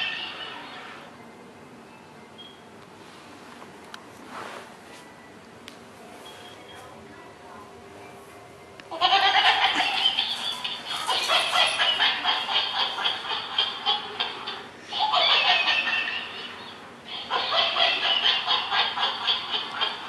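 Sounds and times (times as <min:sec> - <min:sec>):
toy electronic laughter: 0:08.9 - 0:20.0.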